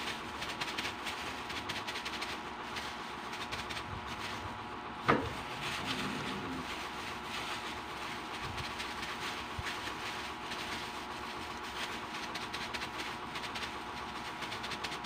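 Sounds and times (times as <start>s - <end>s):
gloved hand squishing mixture: 0.0s - 15.0s
rough background noise: 0.0s - 15.0s.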